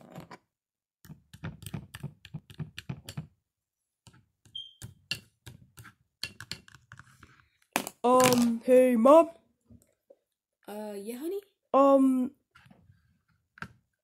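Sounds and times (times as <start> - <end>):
plastic toys clicking and knocking: 1.1 - 3.4, 4.8 - 8.6.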